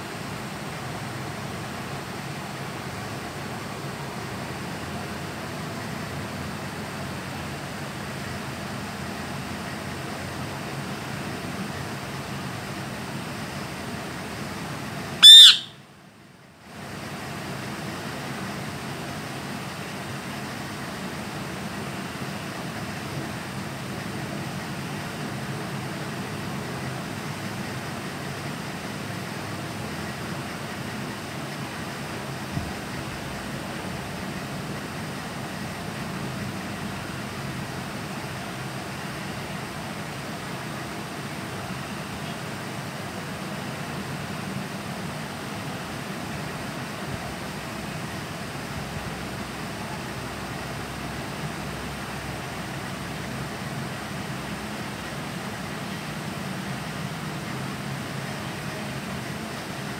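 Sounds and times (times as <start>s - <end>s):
steady fan-like hiss: 0.0s - 59.9s
parakeet screech: 15.2s - 15.8s.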